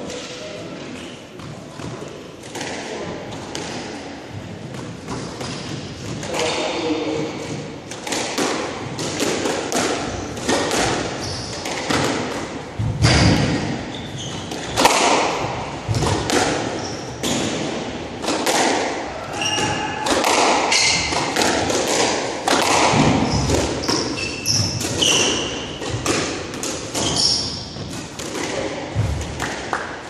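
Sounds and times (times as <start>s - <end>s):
squash ball hitting racquets: 0.9s - 30.0s
shoes squeaking on wooden court: 5.0s - 6.4s, 10.0s - 12.3s, 13.0s - 14.9s, 16.0s - 17.6s, 19.3s - 20.0s, 20.7s - 22.0s, 22.9s - 28.6s.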